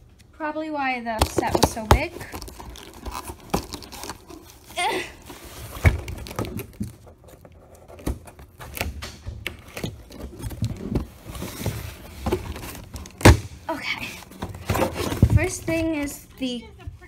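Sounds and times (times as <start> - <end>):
cardboard box scraping and rustling: 1.4 - 8.8, 9.6 - 13.3, 14.1 - 16.1.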